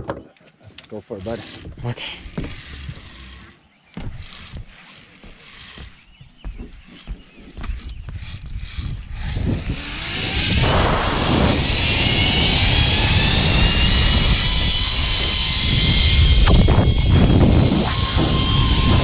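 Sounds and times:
zipline trolley whine: 1.2 - 6.1, 7.0 - 19.0
wind rumble on microphone: 7.7 - 19.0.

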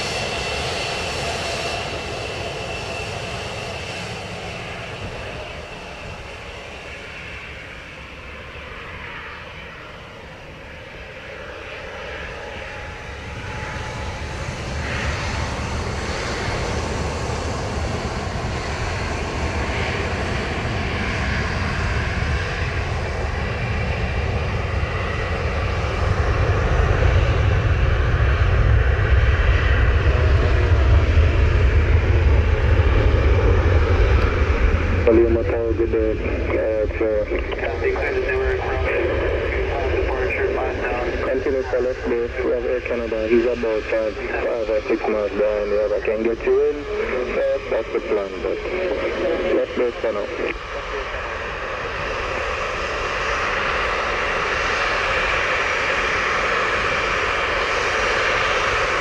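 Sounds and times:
jet engines spooling up: 0.0 - 59.0
deep engine rumble: 21.6 - 54.3.

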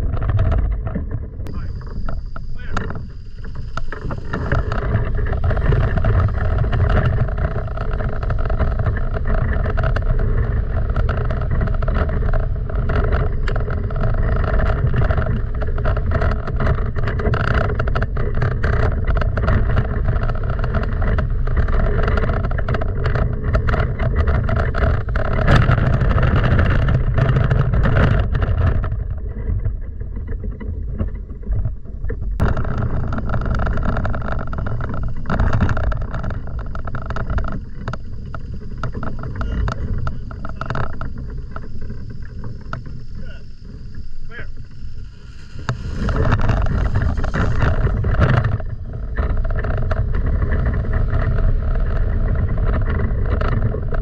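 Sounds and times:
cart wheels rumbling on grass: 0.0 - 54.0
droning tone: 0.0 - 54.0
wind noise: 0.0 - 54.0.

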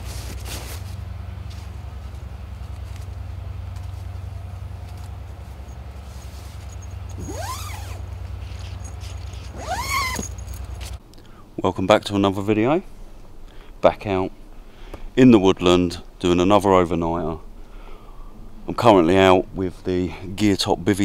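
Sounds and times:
tent zip pulled: 6.2 - 11.0.

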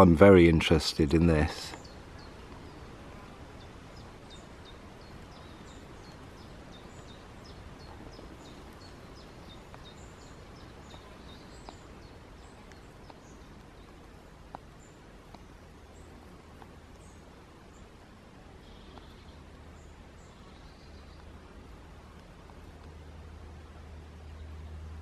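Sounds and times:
small birds chirping: 0.0 - 25.0
steady background hiss: 0.0 - 25.0
sharp clicks: 12.5 - 15.5.

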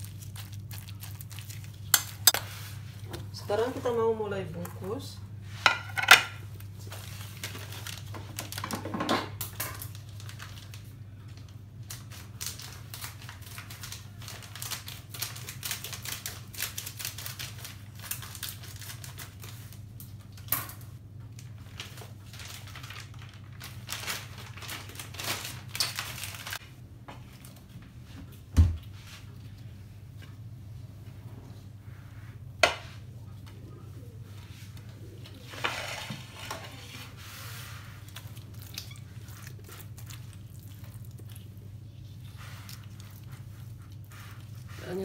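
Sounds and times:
plastic crinkling and rustling: 0.0 - 4.0, 6.4 - 20.5, 21.2 - 28.0, 34.6 - 45.0.

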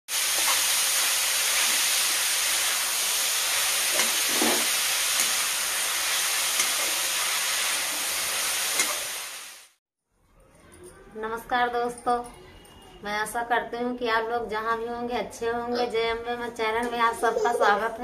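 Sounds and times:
food sizzling in a pan: 0.1 - 9.8
metal spoon scraping a pan: 3.9 - 5.4.

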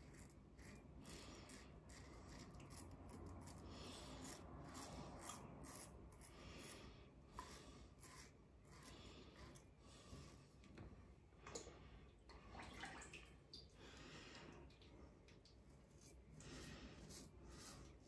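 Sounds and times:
razor scraping stubble: 0.0 - 6.8, 8.0 - 9.5.

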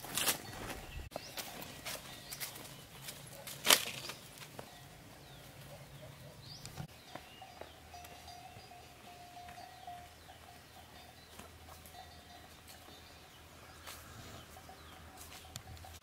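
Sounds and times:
clothes and backpack rustling: 0.0 - 4.7.

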